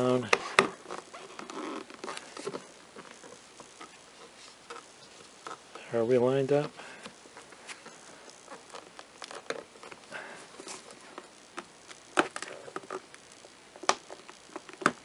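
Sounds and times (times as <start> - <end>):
gloves rustling: 0.0 - 15.0
plastic clicks and creaks: 0.2 - 4.0, 10.6 - 15.0.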